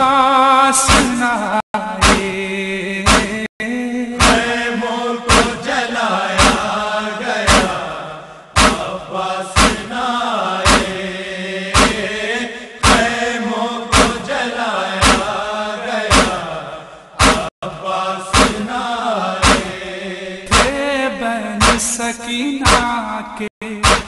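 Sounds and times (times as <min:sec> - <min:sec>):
mournful chanted vocals: 0:00.0 - 0:24.0
sharp chest-beating slaps: 0:00.9 - 0:01.2, 0:02.0 - 0:02.4, 0:03.1 - 0:03.5, 0:04.2 - 0:04.6, 0:05.3 - 0:05.7, 0:06.4 - 0:06.8, 0:07.5 - 0:07.9, 0:08.6 - 0:09.0, 0:09.6 - 0:10.0, 0:10.6 - 0:11.0, 0:11.8 - 0:12.2, 0:12.8 - 0:13.2, 0:13.9 - 0:14.3, 0:15.0 - 0:15.5, 0:16.1 - 0:16.5, 0:17.2 - 0:17.5, 0:18.3 - 0:18.7, 0:19.4 - 0:19.8, 0:20.5 - 0:20.8, 0:21.6 - 0:21.9, 0:22.7 - 0:22.9.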